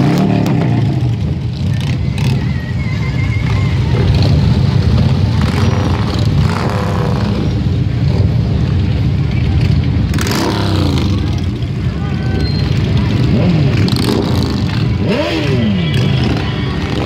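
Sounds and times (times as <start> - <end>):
motorcycles rumbling past: 0.0 - 17.0.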